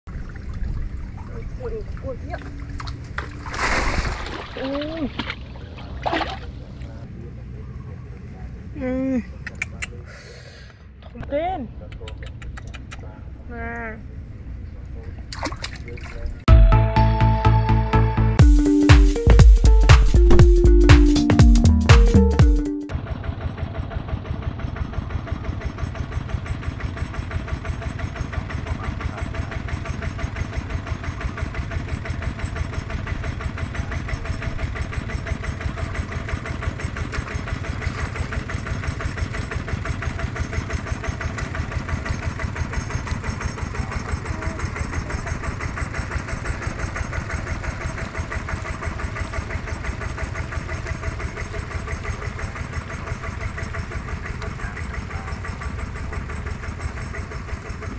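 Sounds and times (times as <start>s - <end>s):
small engine running: 22.9s - 57.9s.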